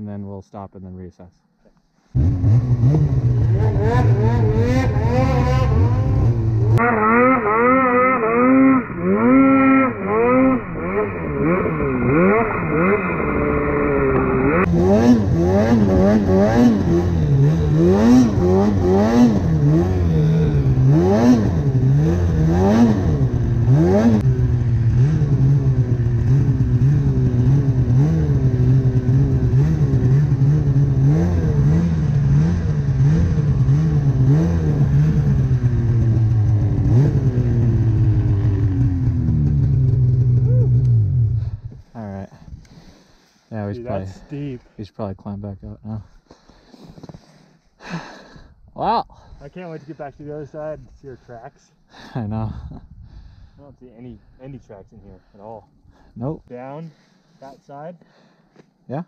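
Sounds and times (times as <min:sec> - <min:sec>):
snowmobile engine revving: 0:02.1 - 0:44.6.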